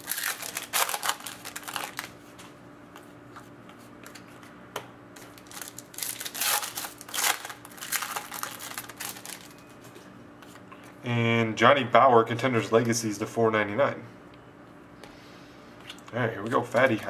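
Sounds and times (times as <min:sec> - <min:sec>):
cards and wrapper rustling: 0:00.0 - 0:02.2, 0:05.2 - 0:09.7
faint steady hum: 0:00.0 - 0:17.0.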